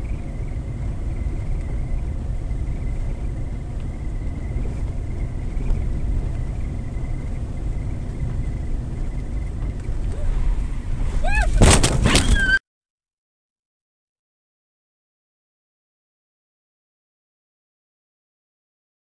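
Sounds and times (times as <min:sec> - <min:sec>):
car driving rumble inside cabin: 0:00.0 - 0:12.6.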